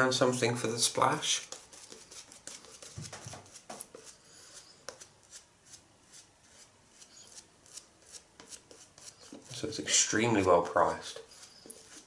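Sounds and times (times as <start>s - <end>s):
shaving brush scratching stubble: 1.2s - 12.0s.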